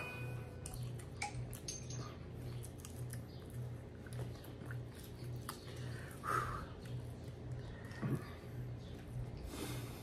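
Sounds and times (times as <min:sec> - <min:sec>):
faint pulsing low hum: 0:00.0 - 0:10.0
man chewing: 0:00.6 - 0:10.0.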